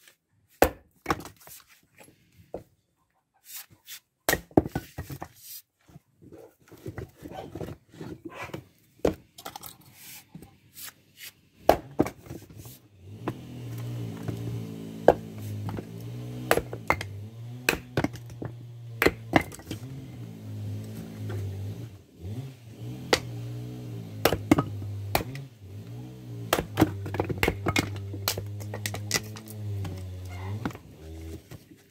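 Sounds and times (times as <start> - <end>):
axe splitting firewood: 0.5 - 1.5, 4.3 - 5.3, 11.6 - 31.7
wood pieces clattering down: 26.6 - 30.8.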